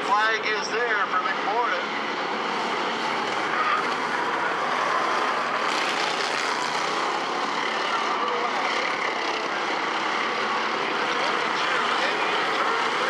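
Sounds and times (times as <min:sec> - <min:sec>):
race car engines roaring: 0:00.0 - 0:13.0.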